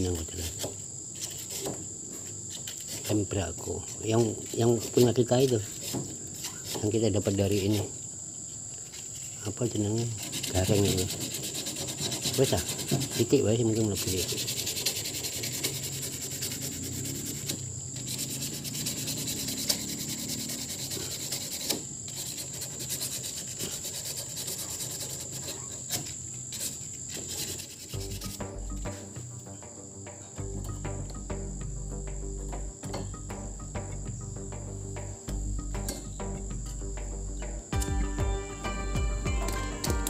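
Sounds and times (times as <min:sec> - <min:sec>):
hands rustling wire: 0:00.0 - 0:29.6
crickets chirping: 0:00.0 - 0:40.0
low steady tones: 0:27.9 - 0:40.0.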